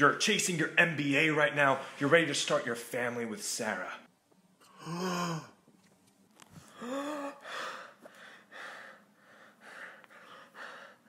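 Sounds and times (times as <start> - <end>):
breathy exhalations: 6.6 - 11.0
man gasping: 6.6 - 11.0.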